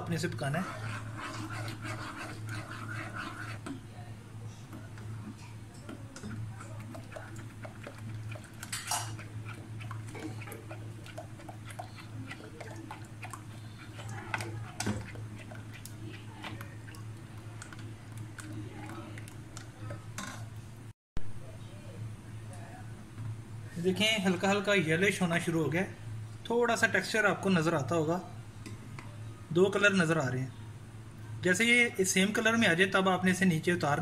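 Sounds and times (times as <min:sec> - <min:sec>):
wooden spoon stirring in saucepan: 0:00.0 - 0:20.6
steady low hum: 0:00.0 - 0:32.2.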